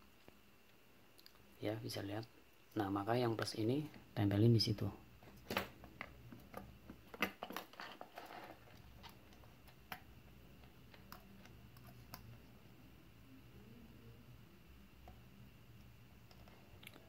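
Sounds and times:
faint steady hum: 0:00.0 - 0:17.0
wire clicks and rustles: 0:05.2 - 0:12.5.

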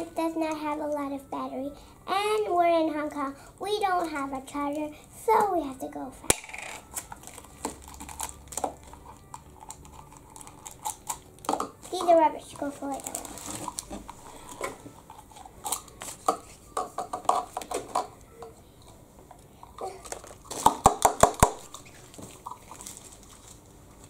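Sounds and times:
wrapper crinkling: 0:06.7 - 0:16.3, 0:19.8 - 0:24.0.

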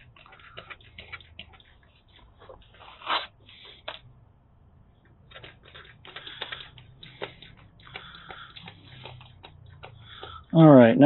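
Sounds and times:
hand pump clicking: 0:05.3 - 0:10.5.

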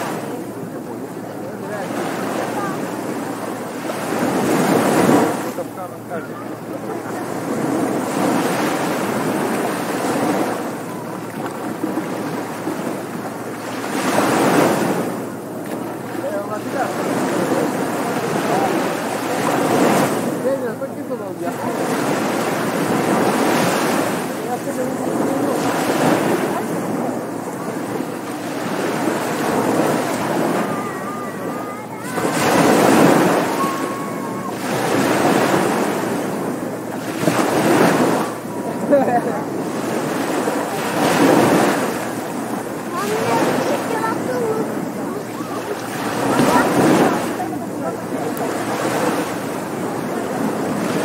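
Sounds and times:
ocean waves breaking on beach: 0:00.0 - 0:51.0.

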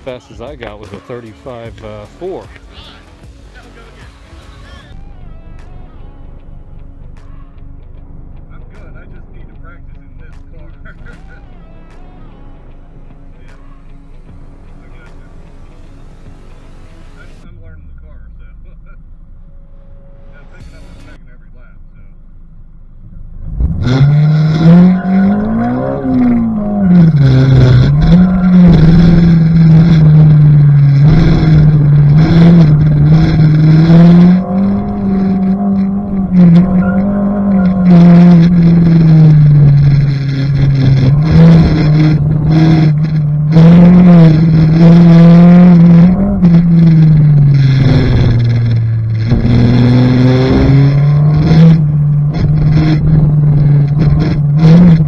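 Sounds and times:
car engine revving hard: 0:10.3 - 0:17.4, 0:23.4 - 0:55.0.

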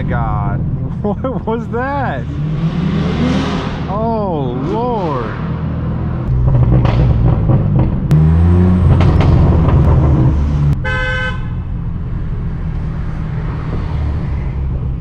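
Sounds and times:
car engine under throttle: 0:00.0 - 0:15.0
exhaust cracks: 0:03.5 - 0:10.8
car horn honking: 0:10.8 - 0:11.7.

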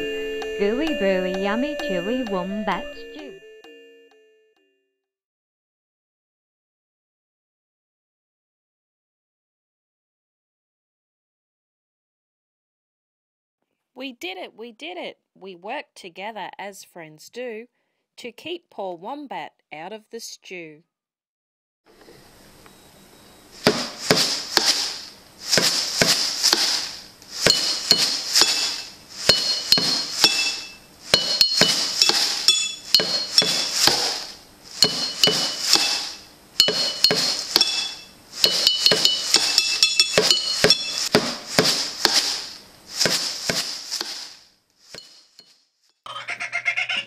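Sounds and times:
metallic clinking percussion: 0:27.4 - 0:42.3.

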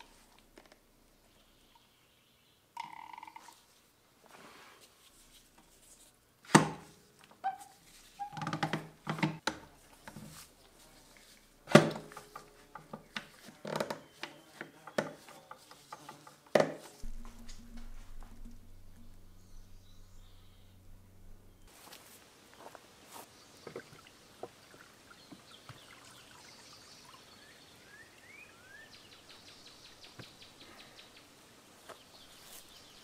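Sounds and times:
steady low hum: 0:17.0 - 0:21.8.

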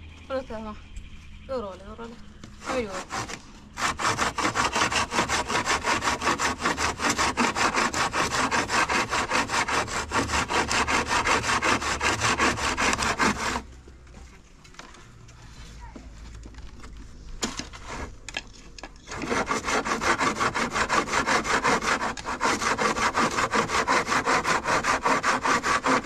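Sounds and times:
handsaw cutting wood: 0:02.6 - 0:13.7, 0:17.8 - 0:18.2, 0:19.1 - 0:26.0.

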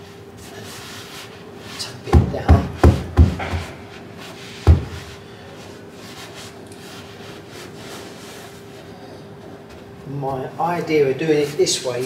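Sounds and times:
rubbing and pressing carpet: 0:00.4 - 0:09.7
hands thumping carpet: 0:02.1 - 0:03.8, 0:04.6 - 0:05.2.

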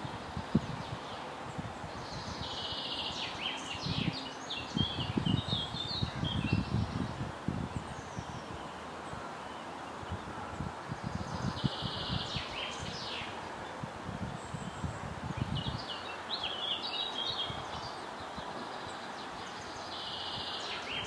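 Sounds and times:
hiss of leaves and air: 0:00.0 - 0:21.0
wind rumble on microphone: 0:00.0 - 0:21.0
bird chirping: 0:15.4 - 0:21.0.

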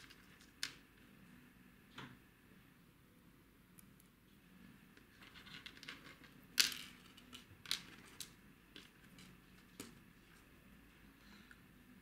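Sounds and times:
light rustling of small parts: 0:00.0 - 0:00.8, 0:05.0 - 0:10.5.

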